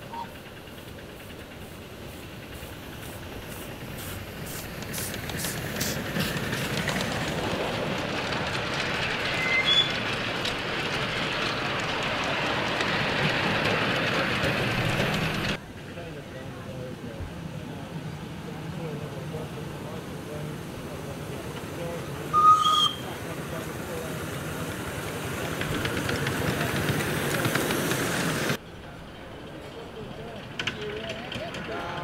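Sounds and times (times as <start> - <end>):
train wheels rumbling: 0.0 - 32.0
brief high squeal: 9.4 - 10.0, 22.4 - 23.1.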